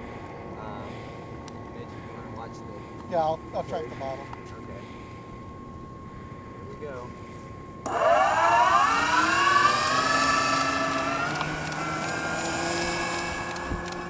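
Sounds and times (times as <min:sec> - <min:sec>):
model airplane motor whine: 0:07.8 - 0:14.0.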